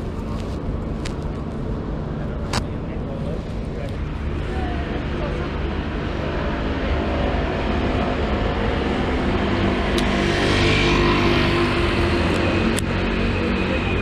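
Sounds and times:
steady low traffic rumble: 0.0s - 14.0s
vehicle passing: 4.0s - 14.0s.

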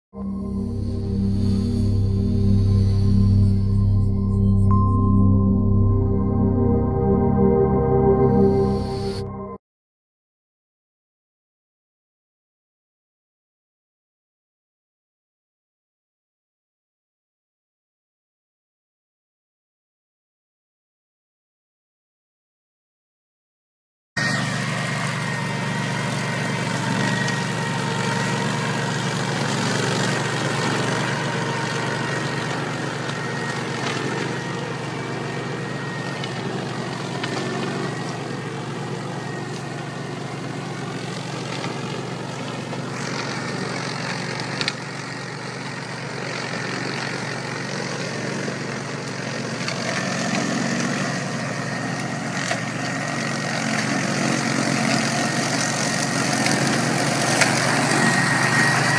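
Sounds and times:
high whine: 0.2s - 9.6s
mower engine running: 0.2s - 9.6s, 24.2s - 58.9s.

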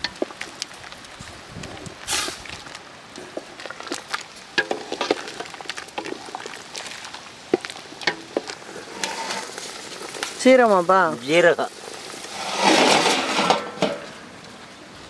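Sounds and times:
metal pots and utensils clinking: 3.3s - 10.4s, 11.8s - 14.3s.

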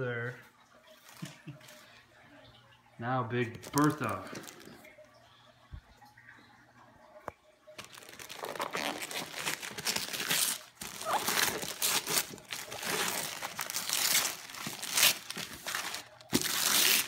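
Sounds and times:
wrapping paper tearing and crumpling: 7.8s - 17.0s.

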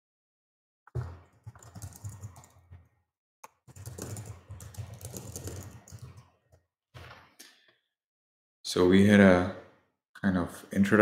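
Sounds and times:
typing on computer keyboard: 0.9s - 6.5s.

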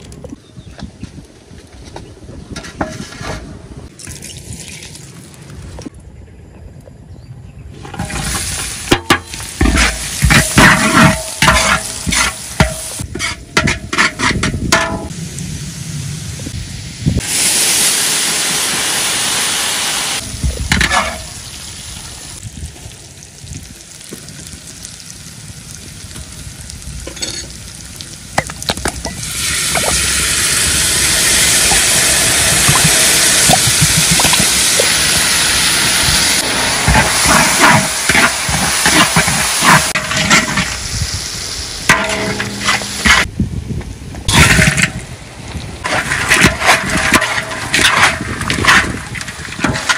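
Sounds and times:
metal spatula scraping wok: 7.8s - 15.1s, 36.4s - 40.8s, 41.9s - 43.3s, 44.3s - 45.0s
onion sizzling in hot oil: 8.0s - 13.4s, 14.9s - 43.3s.

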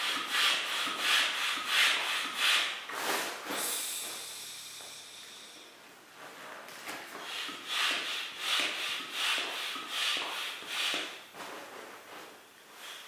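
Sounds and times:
hand air pump strokes: 0.0s - 4.2s, 7.1s - 11.2s
steady air hiss: 0.0s - 6.5s, 7.1s - 11.3s, 12.6s - 13.0s.

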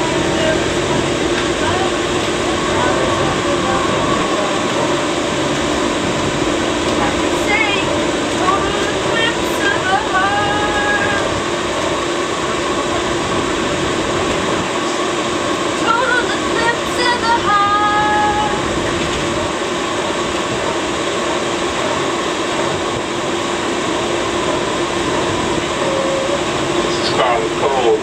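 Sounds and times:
light-rail car running noise: 0.0s - 28.0s
steady low hum: 0.0s - 28.0s
woman singing unaccompanied: 7.3s - 11.4s, 15.8s - 18.6s.

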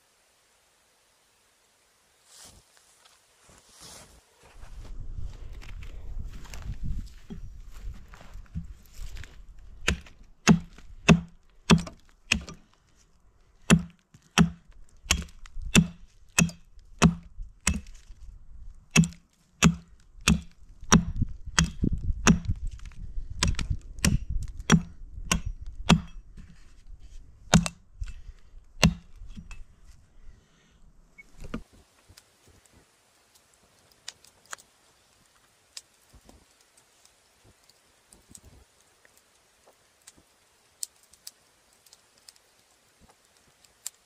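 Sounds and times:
hatchet striking wooden stake: 8.5s - 12.7s, 13.6s - 18.0s, 18.9s - 26.6s, 27.5s - 29.7s.

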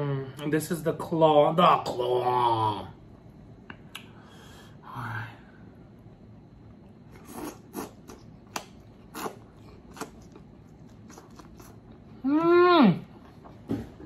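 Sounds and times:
crunchy chewing: 6.7s - 12.2s
person humming mmm: 12.2s - 13.1s.

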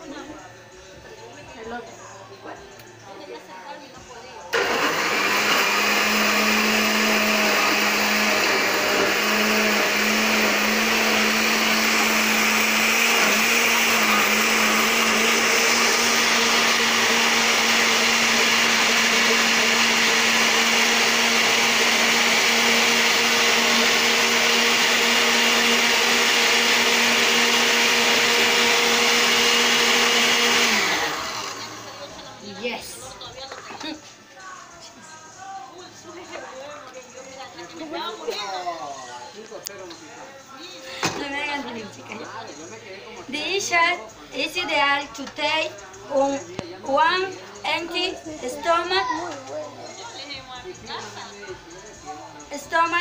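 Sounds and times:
blender motor whine: 4.6s - 32.1s.

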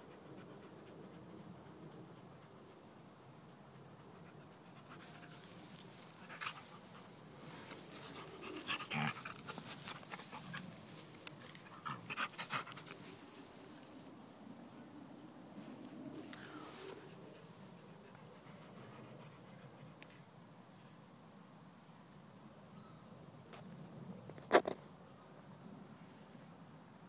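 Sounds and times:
dog panting: 3.6s - 13.2s
rustling in grass: 4.8s - 14.3s, 15.5s - 17.7s.

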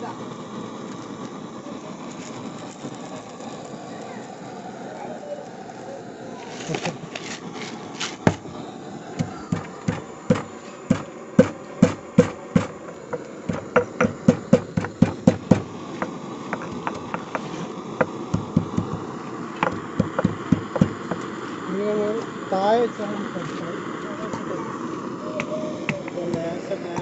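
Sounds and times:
pestle pounding in stone mortar: 9.2s - 19.0s, 19.6s - 21.2s.

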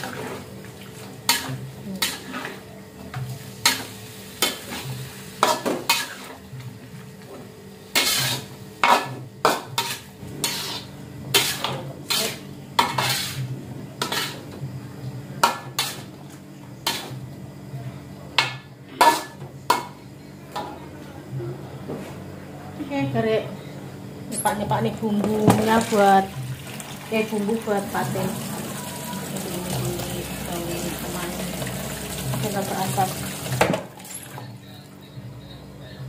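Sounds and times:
spatula scraping a wok: 1.3s - 2.6s, 3.5s - 6.4s, 7.9s - 14.5s, 15.7s - 16.1s, 16.8s - 17.2s, 19.0s - 19.4s
food sizzling: 25.6s - 33.7s.

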